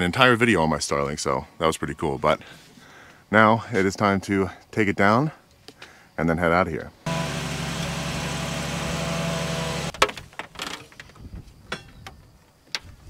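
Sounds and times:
van engine idling: 7.1s - 9.9s.

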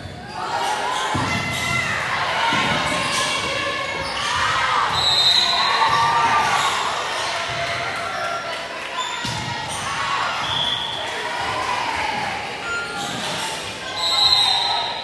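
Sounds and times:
players calling and shouting: 0.0s - 15.0s
volleyball hitting the floor: 9.2s - 9.8s.

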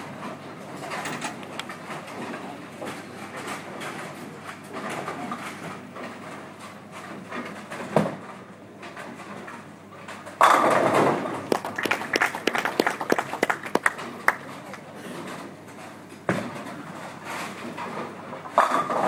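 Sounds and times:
ball crashing into pins: 10.4s - 11.8s
bowling ball thud: 10.4s - 14.7s.

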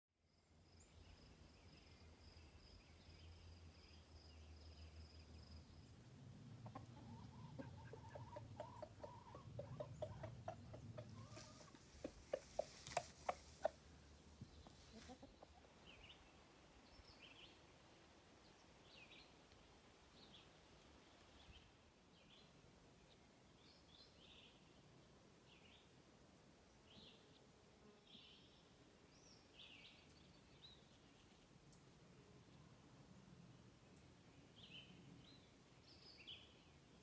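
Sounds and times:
faint songbird chirps: 0.2s - 17.8s, 28.1s - 37.0s
chicken clucking: 6.6s - 13.9s, 14.6s - 15.8s.

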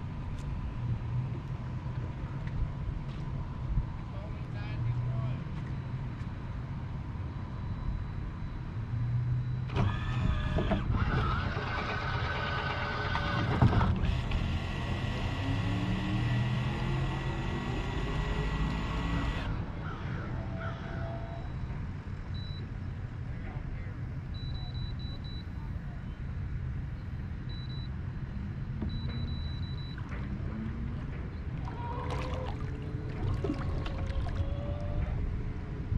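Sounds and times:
electric motor whine: 9.7s - 19.6s.

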